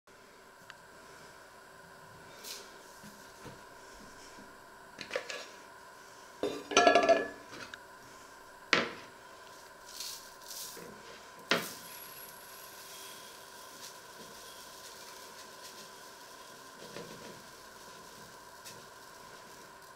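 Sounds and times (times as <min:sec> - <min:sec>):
ceramic cups clinking on metal: 0:06.4 - 0:07.4.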